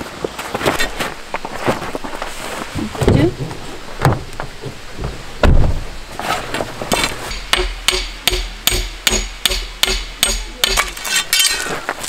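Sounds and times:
low thud: 0:02.8 - 0:06.7
hammering metal stake into gravel: 0:06.9 - 0:11.8.

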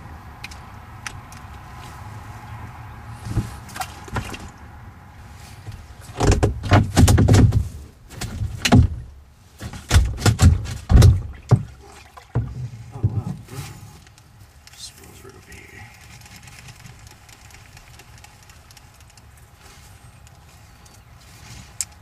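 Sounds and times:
knocks and rattles on kayak hull: 0:03.2 - 0:04.6, 0:05.7 - 0:13.9.

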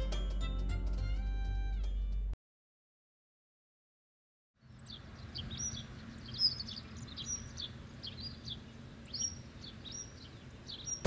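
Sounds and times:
small birds chirping: 0:04.6 - 0:11.0.

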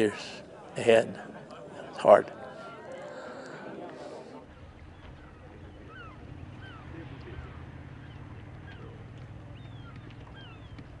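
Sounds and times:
seabirds chirping: 0:02.4 - 0:11.0.

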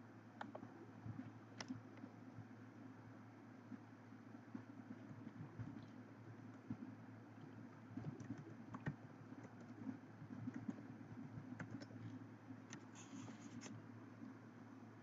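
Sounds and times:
steady low hum: 0:00.0 - 0:15.0
keyboard typing: 0:08.0 - 0:09.8, 0:11.5 - 0:12.1.

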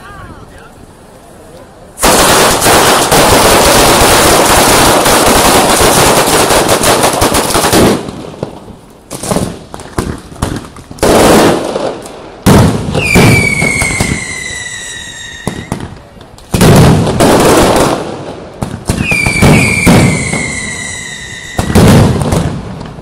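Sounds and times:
loud firecracker bangs: 0:02.0 - 0:14.8, 0:15.4 - 0:23.0
whistling firework: 0:09.2 - 0:18.1, 0:18.7 - 0:23.0.

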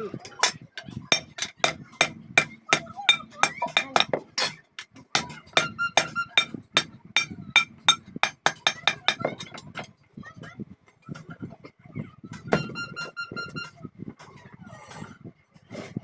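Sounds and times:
hammer striking sheet steel: 0:00.4 - 0:09.5.

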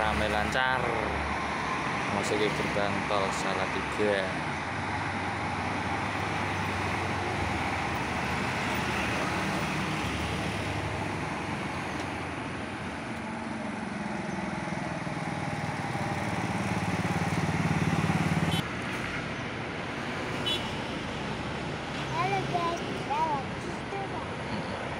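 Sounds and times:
vehicle engine hum: 0:00.0 - 0:19.2
traffic noise: 0:00.0 - 0:24.9.

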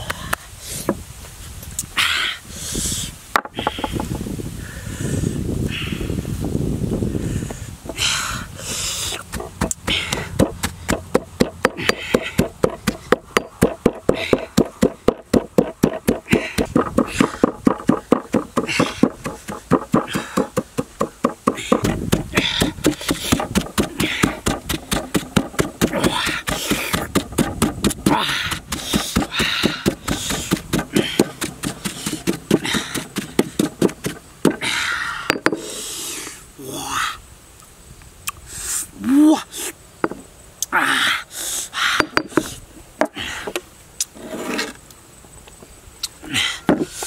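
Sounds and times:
pestle pounding in stone mortar: 0:09.2 - 0:34.7, 0:35.3 - 0:35.6.

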